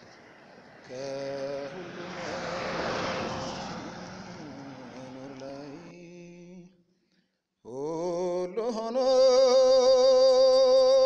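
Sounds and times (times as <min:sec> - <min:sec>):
rushing noise: 0:00.0 - 0:05.9.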